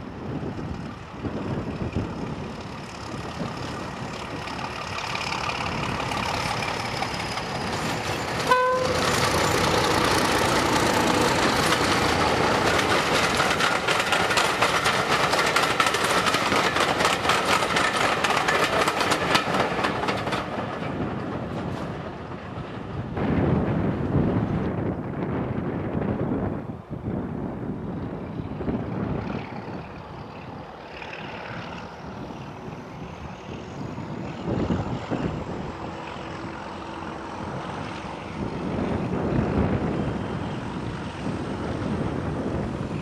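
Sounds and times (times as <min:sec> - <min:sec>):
diesel locomotive passing: 0:00.0 - 0:43.0
wheels clicking over rail joints: 0:00.2 - 0:23.2
locomotive horn toot: 0:08.4 - 0:09.2.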